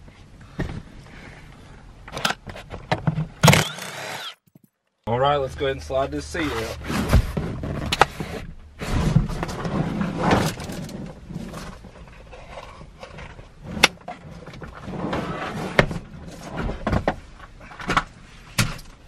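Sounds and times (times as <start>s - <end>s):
seat scraping over carpet: 6.3s - 12.7s, 14.4s - 16.9s.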